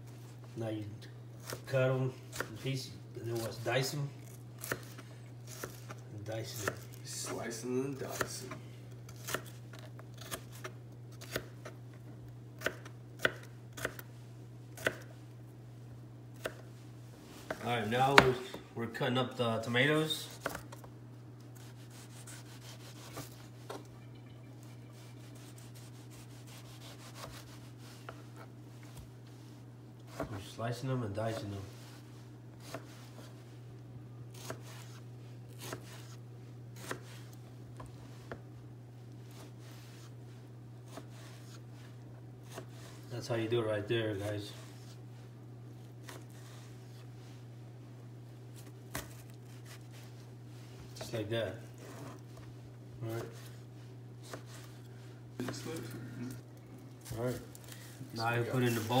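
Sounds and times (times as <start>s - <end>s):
knife slicing tomato: 4.3s - 11.8s, 12.6s - 14.1s, 14.8s - 15.1s, 20.2s - 20.9s, 21.5s - 23.9s, 24.9s - 29.1s, 32.6s - 33.4s, 34.3s - 38.5s, 40.8s - 41.7s, 42.4s - 43.1s, 45.8s - 47.1s, 48.5s - 50.2s, 54.2s - 56.4s
low hum: 20.9s - 30.5s.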